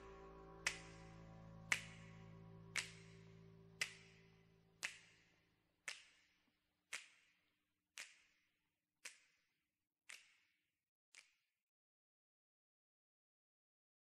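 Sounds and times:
low held note: 0.0s - 4.8s
finger snaps with reverb: 0.0s - 5.3s, 5.9s - 7.3s, 8.0s - 8.4s, 10.1s - 10.4s.

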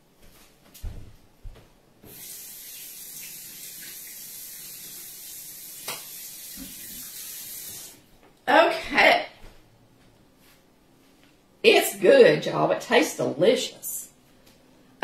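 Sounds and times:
tap water running: 2.0s - 8.1s.

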